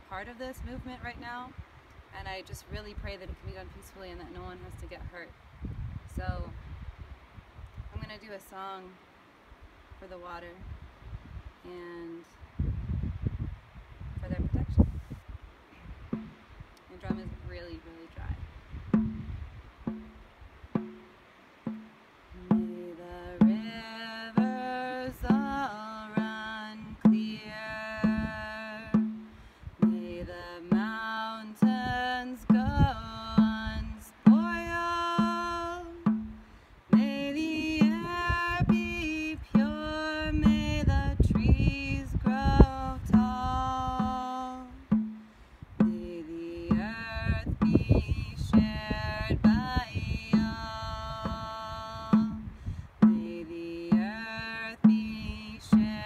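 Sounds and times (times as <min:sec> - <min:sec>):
frame drum beat: 0:16.1 - 0:18.0, 0:18.8 - 0:56.0
woman singing a chant-like song: 0:22.3 - 0:45.0, 0:45.8 - 0:56.0.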